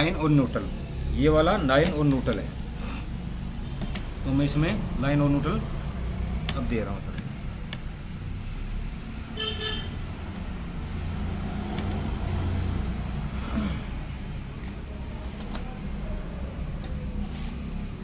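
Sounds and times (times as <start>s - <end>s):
street traffic rumble: 0.0s - 18.0s
vehicle horn toot: 9.4s - 10.0s.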